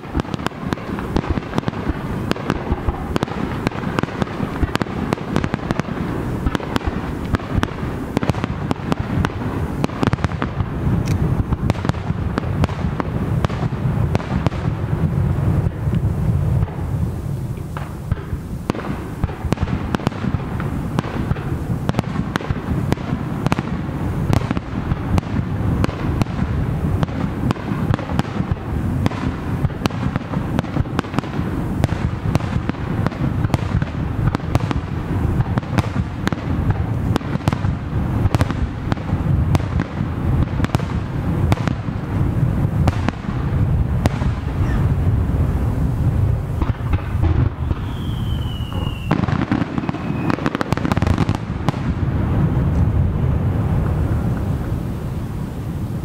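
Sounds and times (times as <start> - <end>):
firework shells bursting: 46.4 - 52.0.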